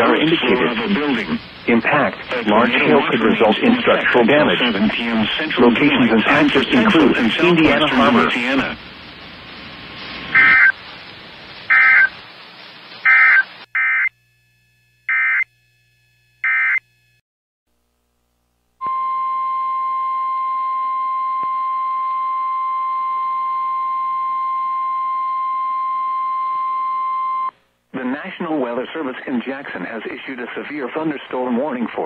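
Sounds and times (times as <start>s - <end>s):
faint radio hiss: 0.0s - 14.8s, 27.6s - 32.0s
buzzy data bursts: 10.3s - 11.0s, 11.6s - 14.2s, 15.0s - 15.7s
steady single-pitched tone: 18.8s - 27.5s.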